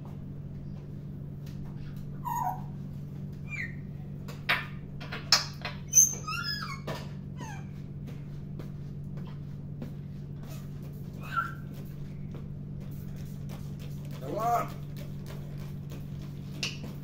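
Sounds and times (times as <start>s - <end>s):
steady low hum: 0.0s - 17.0s
parrot squeaky whistles: 2.2s - 2.7s, 3.4s - 3.8s, 5.9s - 7.6s, 11.2s - 11.7s.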